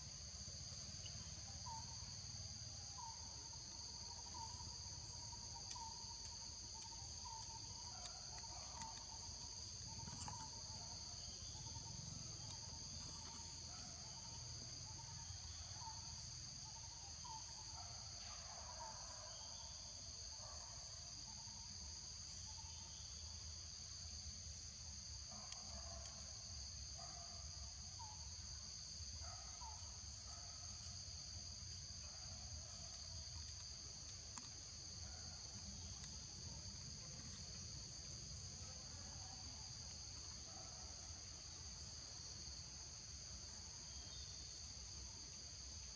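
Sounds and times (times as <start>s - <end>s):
insect chorus drone: 0.0s - 45.9s.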